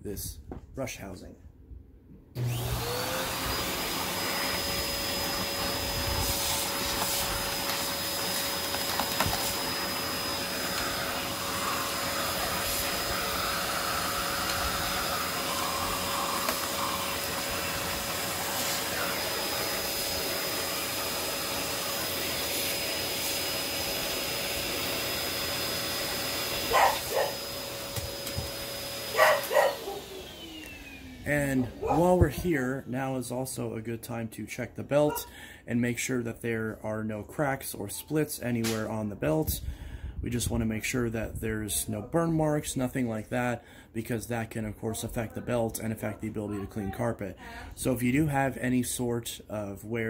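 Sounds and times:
vacuum motor winding down: 2.4s - 32.4s
vacuum cleaner running: 2.4s - 33.3s.

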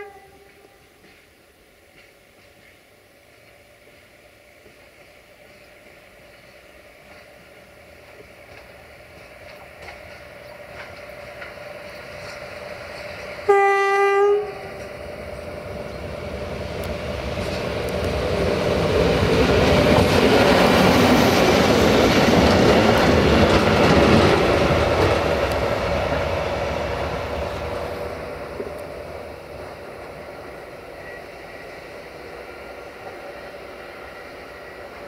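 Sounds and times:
rail vehicle horn blast: 0.0s - 0.8s, 13.4s - 14.8s
rail vehicle engine and wheels: 0.0s - 35.0s.

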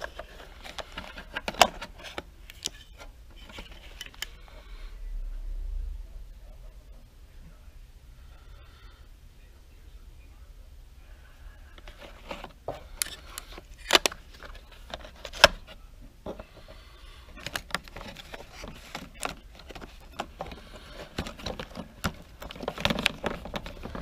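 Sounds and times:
plastic cases clacking: 0.0s - 4.5s, 11.8s - 24.0s.

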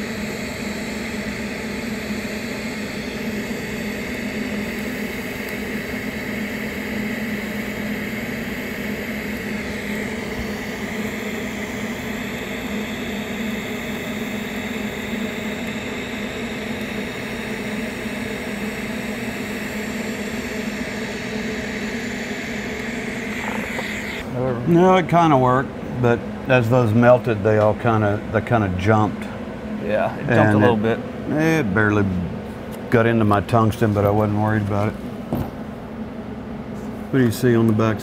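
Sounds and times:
welding arc hissing: 16.4s - 24.2s.

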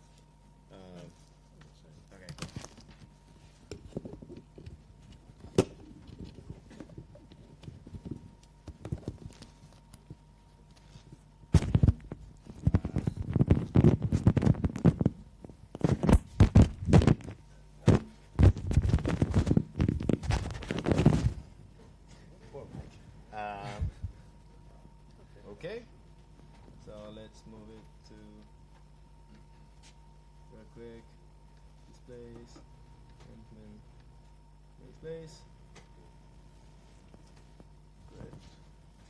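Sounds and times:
microphone rustling against cloth: 6.1s - 21.5s.

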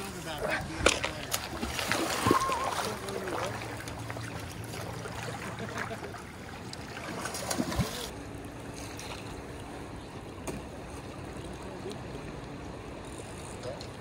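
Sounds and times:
river water rushing: 0.0s - 8.5s.

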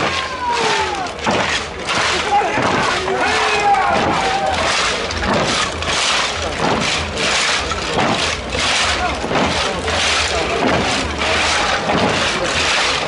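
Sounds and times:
crowd hubbub: 0.0s - 13.0s
rhythmic dancing beat: 3.9s - 13.0s.

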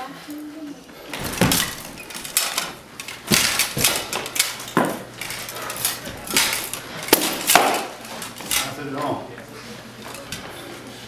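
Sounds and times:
swords striking shields and armour: 1.2s - 5.0s, 6.0s - 8.0s.

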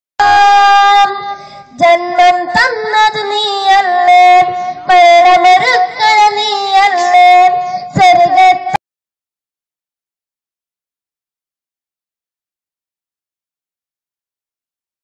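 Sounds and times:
boy singing into a microphone: 0.2s - 8.8s.

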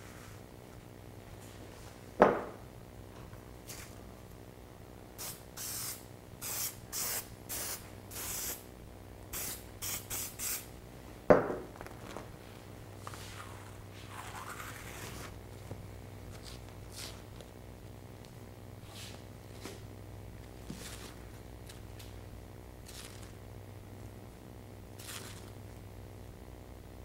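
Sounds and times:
aerosol spray hissing: 5.2s - 8.6s, 9.3s - 10.8s.

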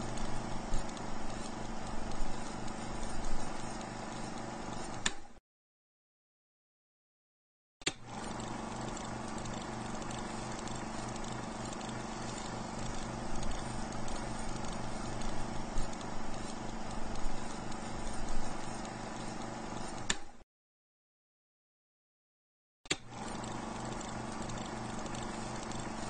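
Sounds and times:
film projector clattering: 7.9s - 20.2s, 22.9s - 26.0s
projector switch click: 20.0s - 20.3s.

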